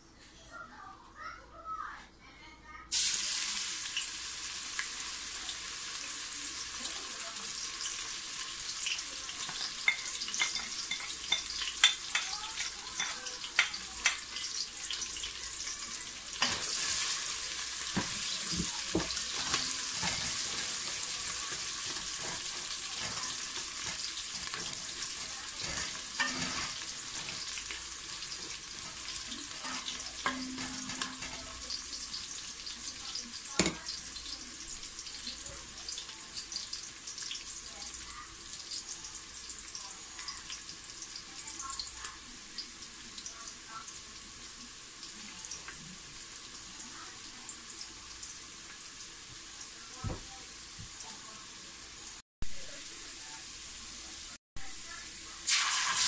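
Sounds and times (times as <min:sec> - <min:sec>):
onions sizzling in oil: 0:02.9 - 0:56.0
spoon scraping a pot: 0:09.6 - 0:14.5, 0:18.0 - 0:32.3.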